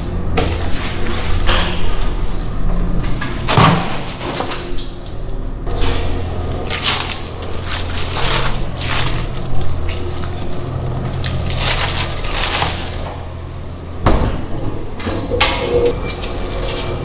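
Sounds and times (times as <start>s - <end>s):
low machine hum: 0.0s - 17.0s
plastic wrapping crinkling: 6.7s - 13.0s.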